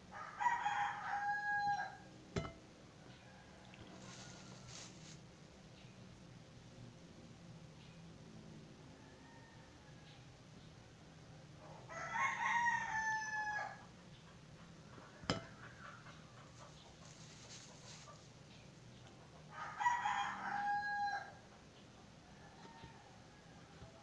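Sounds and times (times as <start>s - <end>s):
rooster crowing: 0.1s - 2.1s, 3.0s - 5.0s, 8.9s - 10.3s, 11.9s - 13.9s, 19.4s - 21.5s, 22.2s - 24.0s.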